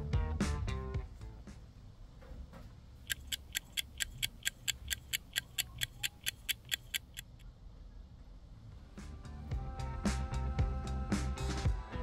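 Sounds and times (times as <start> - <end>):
clock ticking quickly: 3.0 - 7.4.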